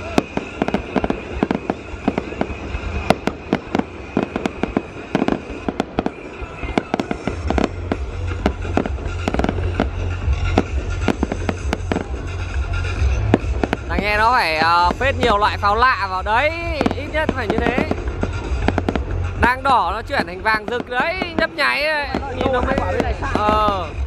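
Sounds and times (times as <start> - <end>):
fireworks bangs and crackles: 0.0 - 24.0
low rumble: 7.3 - 21.5.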